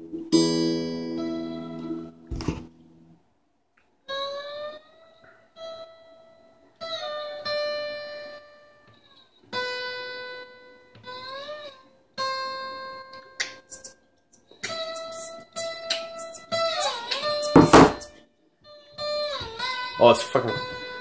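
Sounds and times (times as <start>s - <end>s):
guitar string plucked: 0.0s - 2.8s.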